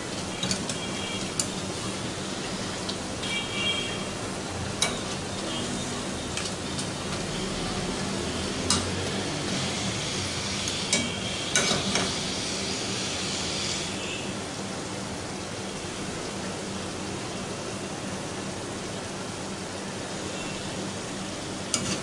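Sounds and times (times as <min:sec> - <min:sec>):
oil sizzling: 0:00.0 - 0:14.0.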